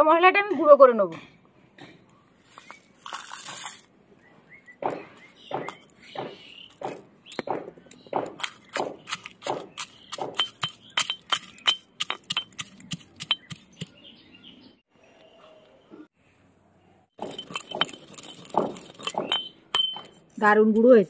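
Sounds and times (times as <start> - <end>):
pestle pounding in iron mortar: 4.8 - 14.0, 17.2 - 20.2
metallic clinks ringing: 17.2 - 20.2.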